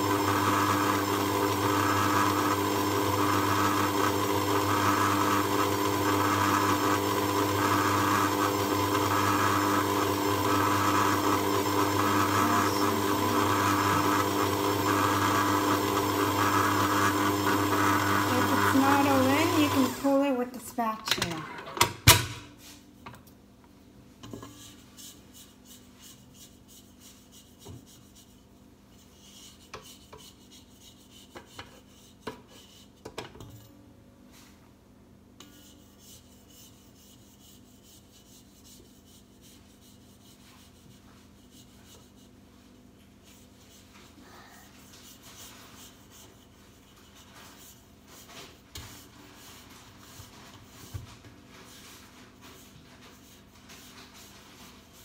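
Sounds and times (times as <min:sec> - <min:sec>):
spatula scraping a metal bowl: 0:24.4 - 0:33.0, 0:35.4 - 0:42.4.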